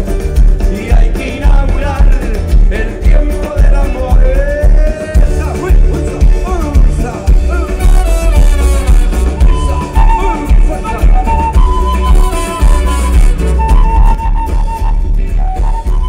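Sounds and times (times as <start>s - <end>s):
live band playing latin song: 0.0s - 16.0s
trombone and trumpet: 7.4s - 16.0s.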